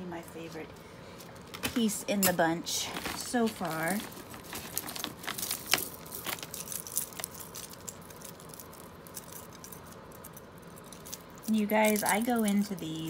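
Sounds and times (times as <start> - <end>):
metal jewelry clinking: 3.6 - 13.0.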